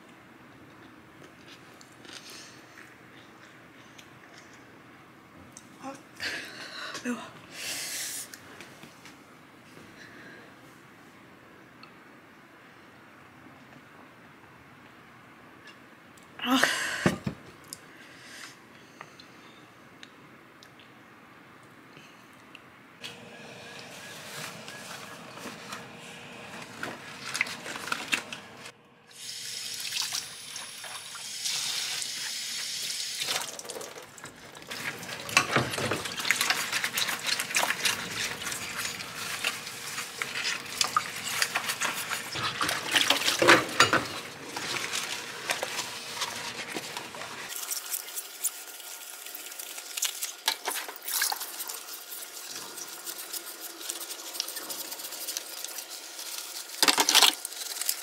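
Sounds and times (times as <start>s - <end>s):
tap water running: 23.1s - 58.0s
sponge scrubbing bowls squeakily: 34.7s - 47.5s
dishes knocking and clinking: 43.4s - 44.3s.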